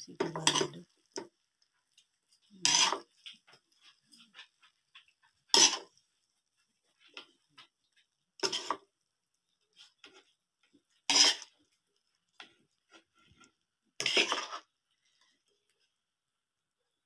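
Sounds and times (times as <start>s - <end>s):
metal spoon scraping a pan: 0.2s - 1.3s, 2.2s - 6.1s, 8.4s - 8.9s, 10.9s - 11.7s, 12.4s - 15.3s.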